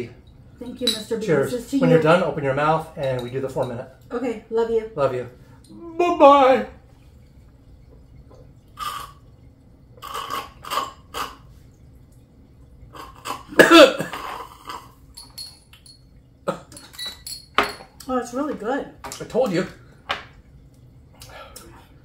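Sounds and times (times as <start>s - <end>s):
people gulping and breathing: 6.8s - 15.2s, 16.4s - 17.0s, 19.8s - 22.0s
strained voiced cough: 13.4s - 14.5s.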